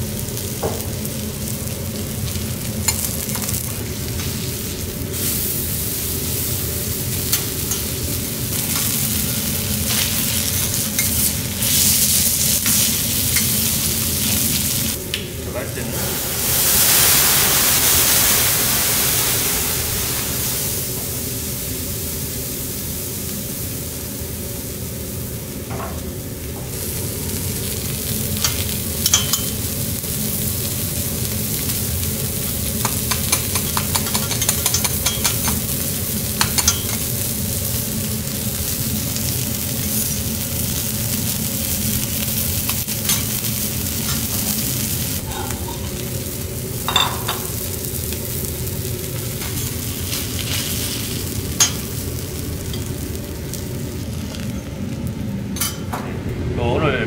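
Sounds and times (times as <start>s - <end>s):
fish sizzling on a griddle: 0.0s - 25.8s, 26.7s - 55.2s
metal spatulas tapping a griddle: 28.4s - 29.5s, 32.8s - 35.6s, 36.4s - 37.0s.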